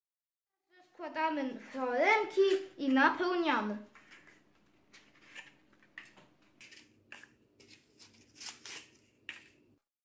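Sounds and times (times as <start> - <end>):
paper liners crinkling: 3.9 - 9.6.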